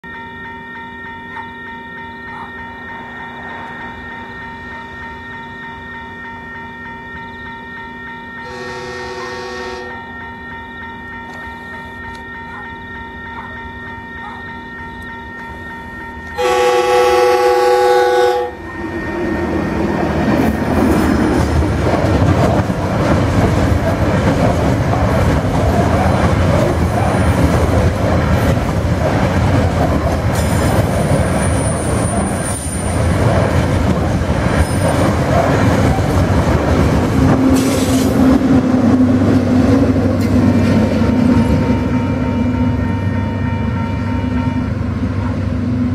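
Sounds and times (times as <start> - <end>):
level crossing alarm bells: 0.0 - 21.0
diesel locomotive engine drone: 0.0 - 45.9
train horn blast: 8.4 - 10.2, 16.4 - 19.0, 40.8 - 45.2
train wheels clacking on rails: 18.9 - 41.8.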